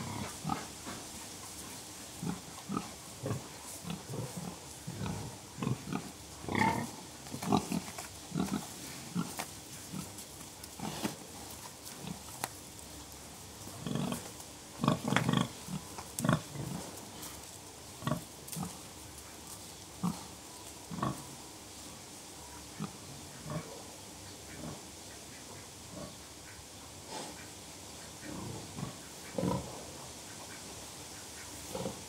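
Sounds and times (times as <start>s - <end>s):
pigs grunting: 0.0s - 1.0s, 2.2s - 10.2s, 13.7s - 17.3s, 18.0s - 18.9s, 20.0s - 21.3s, 22.7s - 23.9s, 28.1s - 30.0s, 31.6s - 32.0s.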